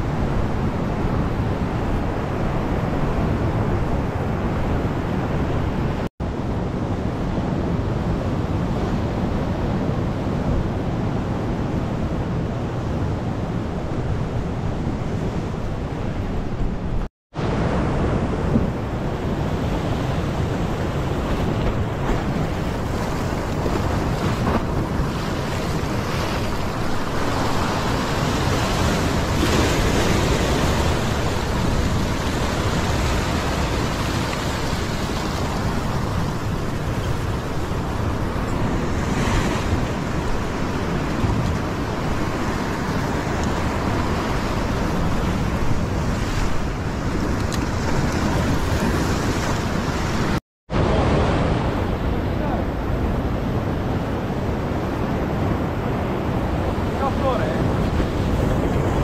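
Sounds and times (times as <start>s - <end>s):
wind buffeting microphone: 0.0s - 59.0s
heavy surf breaking on rocks: 17.6s - 59.0s.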